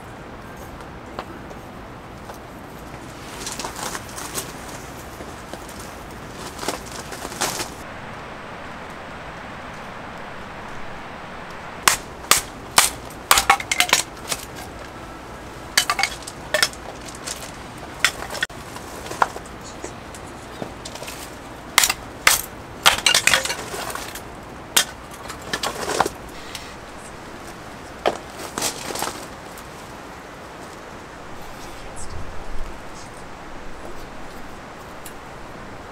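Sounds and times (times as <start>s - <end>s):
steady soft hiss: 0.0s - 13.3s, 23.6s - 35.9s
small hard items clinking: 12.3s - 14.9s, 15.7s - 19.5s, 20.8s - 24.2s.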